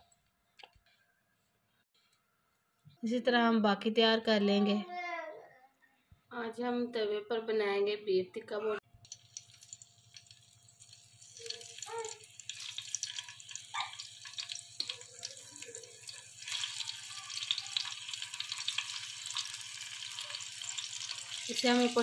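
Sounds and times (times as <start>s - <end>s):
meat skewers sizzling on griddle: 9.1s - 22.0s.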